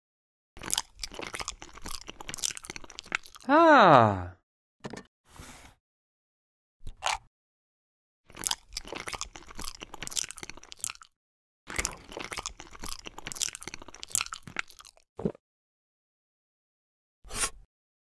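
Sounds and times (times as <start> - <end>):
crunchy biting and chewing: 0.6 - 3.5, 8.3 - 11.1, 11.7 - 15.0.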